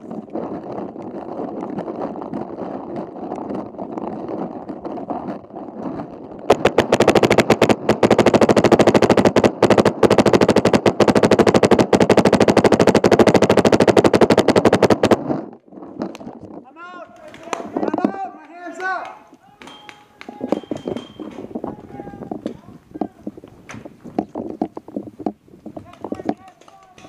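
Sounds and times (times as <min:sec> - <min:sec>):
paintball marker firing: 0:06.5 - 0:15.4, 0:23.7 - 0:27.0.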